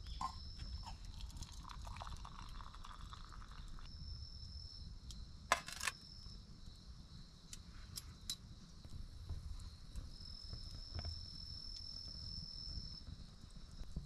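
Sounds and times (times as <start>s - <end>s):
high insect trill: 0.0s - 13.4s
campfire crackling: 1.1s - 3.9s
metal mug clinking on metal sheet: 5.5s - 6.0s.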